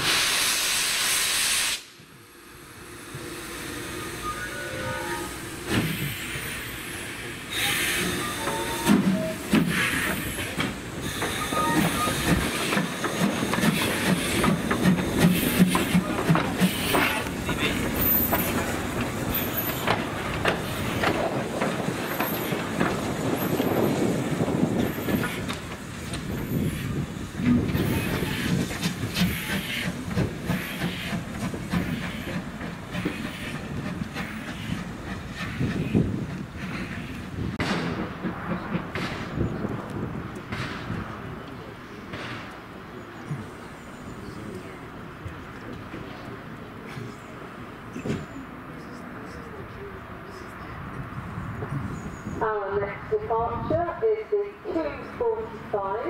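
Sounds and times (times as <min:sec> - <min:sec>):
hissing steam: 0:00.0 - 0:04.5, 0:05.2 - 0:39.6
steam locomotive exhaust chuff: 0:07.5 - 0:39.6
wheels clanking on rails: 0:08.0 - 0:44.4.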